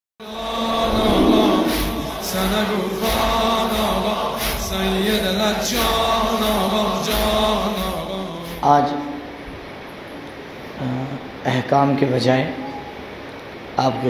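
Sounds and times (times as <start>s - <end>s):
man chanting: 0.2s - 9.3s.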